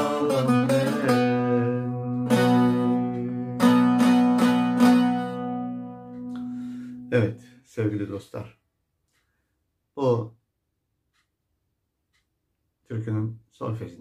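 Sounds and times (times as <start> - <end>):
open string drone: 0.0 - 7.2
plucked lute strumming: 0.0 - 7.3.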